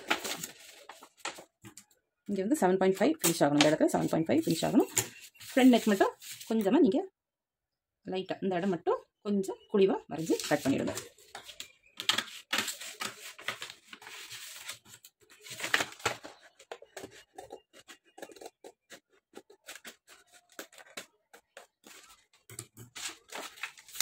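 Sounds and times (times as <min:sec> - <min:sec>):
scissors cutting stiff paper: 0:16.9 - 0:24.0.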